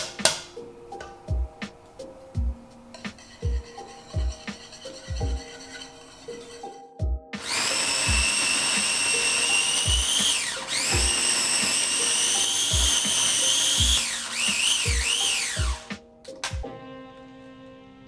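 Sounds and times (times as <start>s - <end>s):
background music with steady beat: 0.0s - 18.0s
food processor motor whining: 7.4s - 15.9s.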